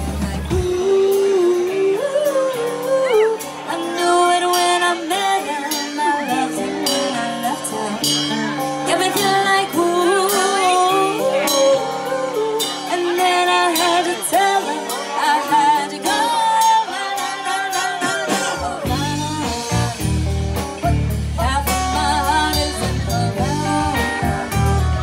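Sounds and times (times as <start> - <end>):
heavy bass: 0.0 - 1.4, 18.0 - 25.0
drum kit: 0.0 - 25.0
electric guitar: 0.0 - 25.0
woman singing lead: 0.0 - 25.0.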